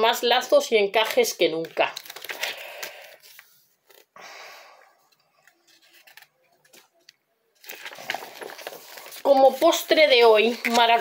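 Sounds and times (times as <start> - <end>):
paper rustling and sliding: 7.6 - 11.0.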